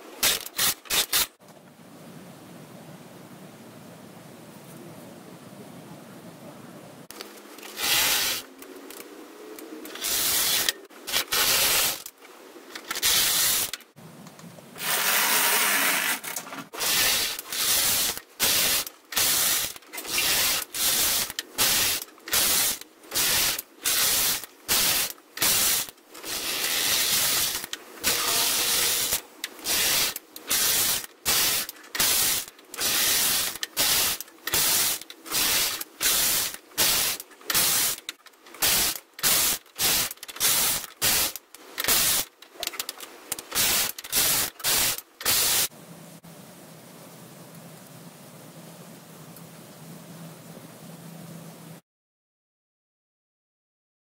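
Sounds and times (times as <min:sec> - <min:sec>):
knitting machine carriage rasping: 0:07.6 - 0:08.5, 0:14.8 - 0:44.6.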